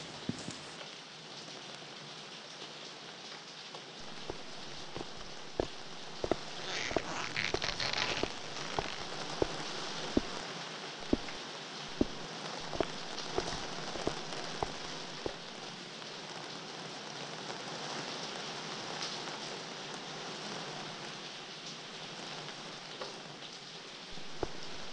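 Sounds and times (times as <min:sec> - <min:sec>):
rain-like hiss of water: 0:00.0 - 0:24.9
water splashing fizz: 0:04.0 - 0:15.7
water dripping into water: 0:11.0 - 0:15.7.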